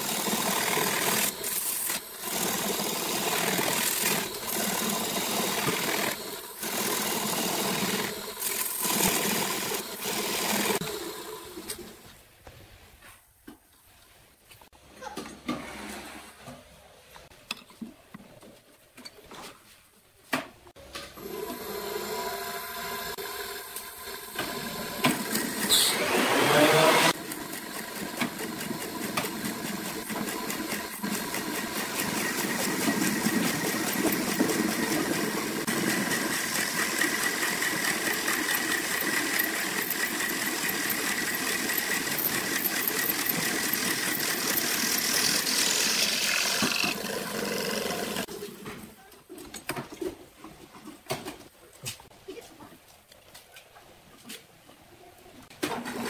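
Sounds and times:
turning tool scraping wood: 0:00.0 - 0:11.9, 0:21.4 - 0:48.4
wood lathe motor running: 0:00.0 - 0:11.9, 0:21.2 - 0:48.3.

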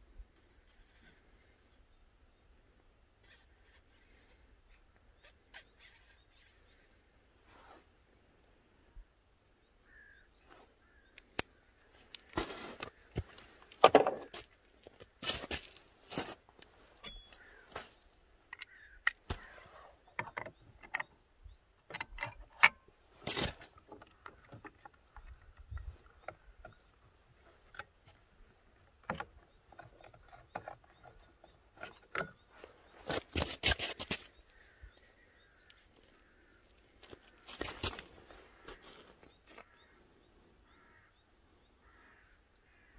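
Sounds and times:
metallic clicks and scrapes: 0:05.2 - 0:07.0, 0:18.5 - 0:34.3.

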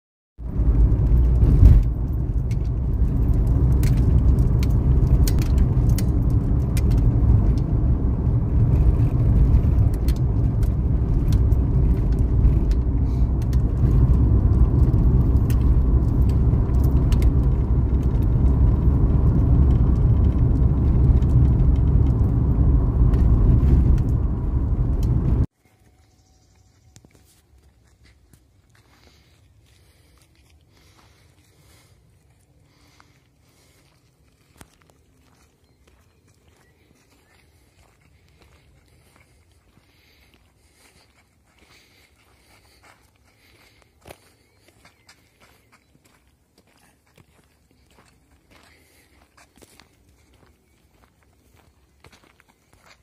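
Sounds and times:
tyres and engine rumbling: 0:00.4 - 0:25.5.

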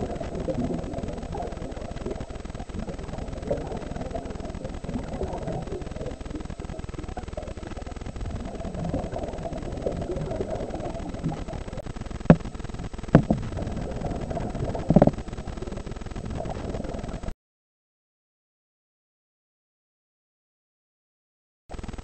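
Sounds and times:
muffled underwater rumble: 0:00.0 - 0:17.3.

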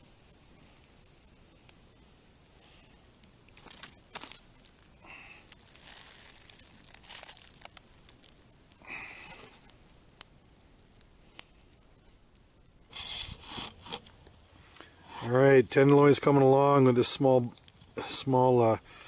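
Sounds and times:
steaks sizzling on grill: 0:00.0 - 0:10.4, 0:12.5 - 0:19.0
burning wood crackling: 0:00.0 - 0:19.0
loud rustle: 0:03.5 - 0:07.9.

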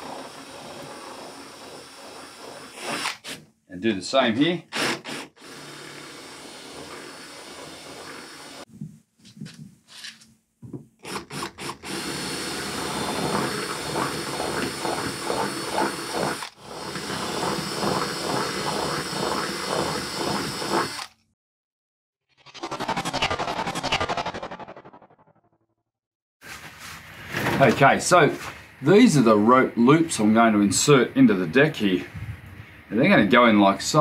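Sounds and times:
cordless drill boring into foam: 0:00.0 - 0:03.5, 0:04.6 - 0:08.7, 0:11.0 - 0:21.2.

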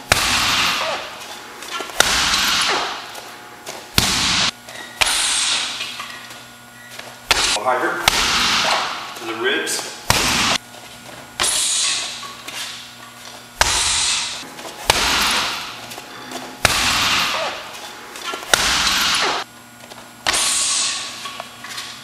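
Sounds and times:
kicks smacking a punching bag: 0:00.0 - 0:01.2, 0:01.8 - 0:03.1, 0:03.7 - 0:05.8, 0:07.2 - 0:09.0, 0:10.0 - 0:10.6, 0:13.6 - 0:15.8, 0:16.6 - 0:17.7, 0:18.4 - 0:19.4.

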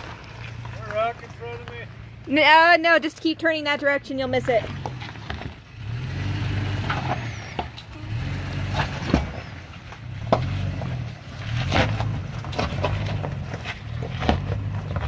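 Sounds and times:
truck engine running: 0:00.0 - 0:15.0
rocks knocking under tyres: 0:04.6 - 0:05.7, 0:08.6 - 0:15.0.

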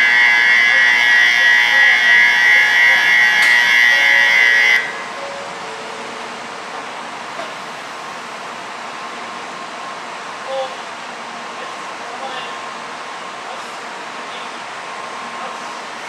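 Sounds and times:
electronic platform bell ringing: 0:00.0 - 0:06.2.

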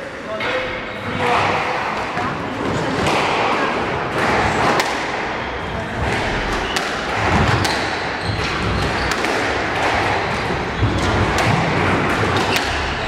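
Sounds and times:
murmur of hall: 0:00.0 - 0:13.0
squash ball knocking: 0:06.0 - 0:13.0.

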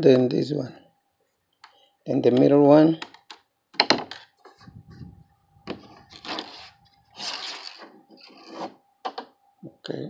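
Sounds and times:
screwdriver scraping plastic: 0:06.0 - 0:08.8.

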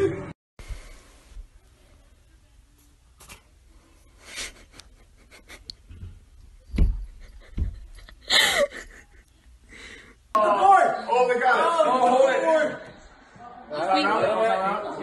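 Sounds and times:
person panting laughter: 0:04.2 - 0:05.9, 0:07.1 - 0:10.2.

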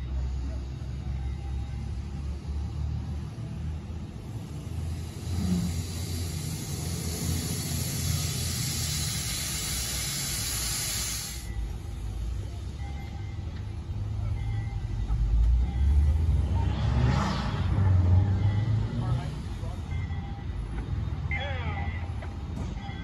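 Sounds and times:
low train rumble: 0:00.0 - 0:23.0
steam locomotive hissing: 0:01.8 - 0:12.8.

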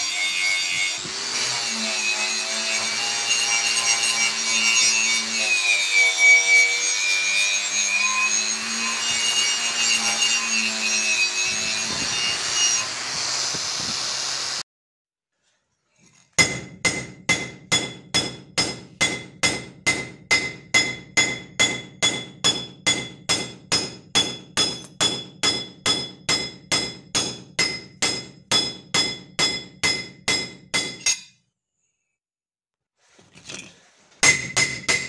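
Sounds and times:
hammer striking steel blade: 0:16.4 - 0:31.4.

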